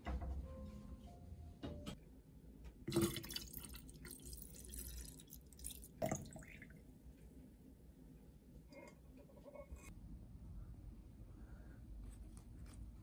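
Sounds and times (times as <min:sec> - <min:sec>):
water splashing in glass bottle: 0:02.9 - 0:06.7.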